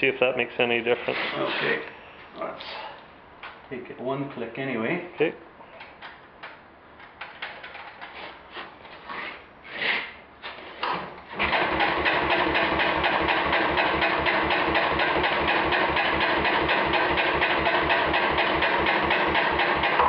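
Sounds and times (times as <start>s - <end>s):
engine cranking by starter: 10.8s - 20.0s.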